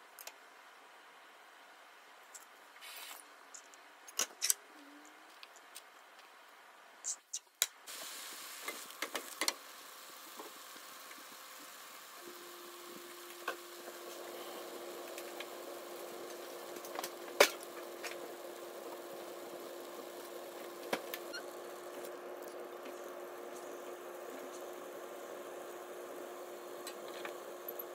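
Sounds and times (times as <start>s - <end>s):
food simmering in a pan: 7.9s - 27.9s
steady hum: 7.9s - 27.9s.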